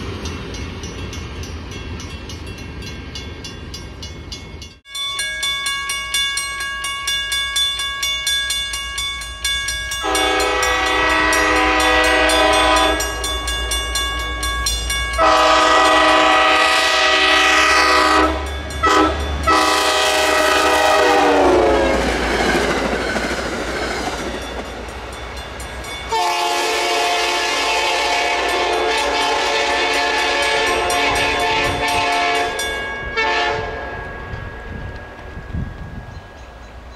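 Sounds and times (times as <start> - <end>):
train rumbling with wheel clatter: 0.0 - 4.8, 9.4 - 36.9
crossing bell ringing: 0.0 - 36.9
locomotive horn blasts: 10.0 - 13.5, 15.1 - 22.1, 26.1 - 34.0.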